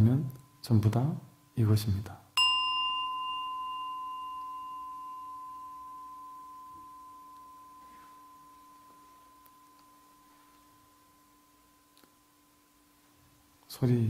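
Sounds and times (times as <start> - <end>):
bowl bell ringing: 2.4 - 12.6
low hum: 2.4 - 13.4.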